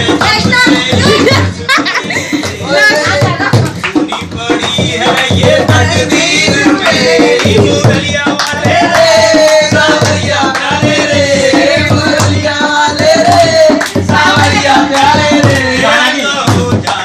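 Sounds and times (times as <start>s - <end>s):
hand drum dance rhythm: 0.0s - 17.0s
hand clapping: 2.4s - 5.4s, 6.8s - 7.7s, 8.3s - 11.2s, 13.2s - 15.8s, 16.8s - 17.0s.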